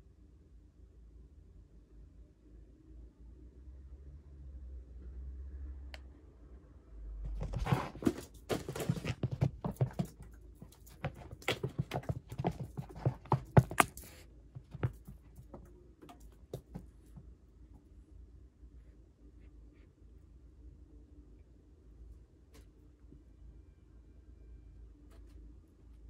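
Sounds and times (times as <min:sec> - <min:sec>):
cat paw thumps and scuffs: 0:07.2 - 0:17.3
light paw taps: 0:08.8 - 0:17.2.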